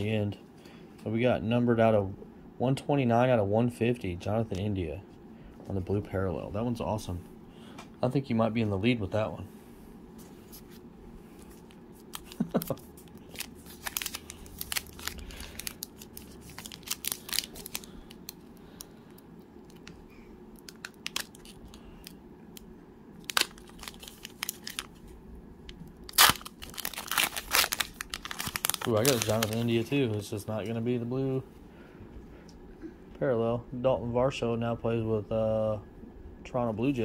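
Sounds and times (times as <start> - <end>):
wrapper crinkling and tearing: 11.5 - 18.9, 20.6 - 22.2, 23.2 - 25.1, 26.0 - 30.3.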